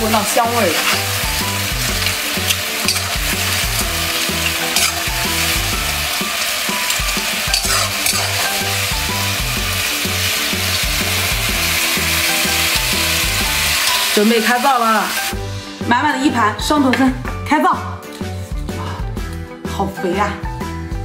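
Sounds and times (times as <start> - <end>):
food sizzling in a wok: 0.0 - 15.9
ladle scraping pan: 0.6 - 8.9, 13.6 - 14.3
metal ladle stirring: 0.6 - 8.9, 13.7 - 14.3.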